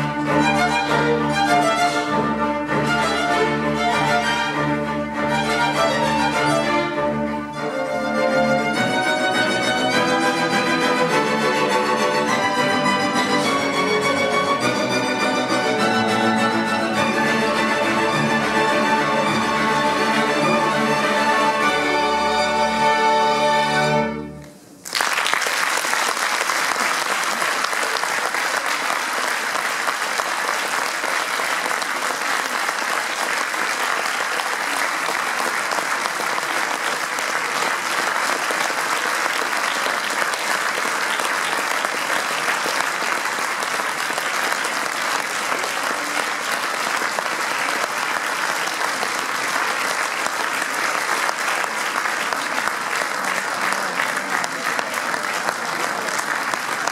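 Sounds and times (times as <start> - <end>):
audience applauding: 24.4 - 56.9.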